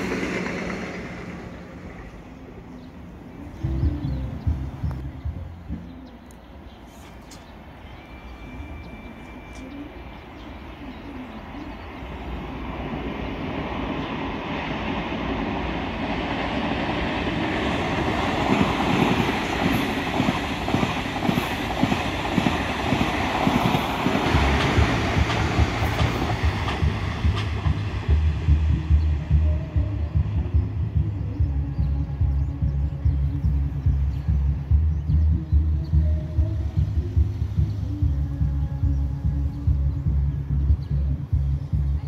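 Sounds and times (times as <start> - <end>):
train wheels clattering on rails: 0.0 - 2.2, 13.8 - 31.1.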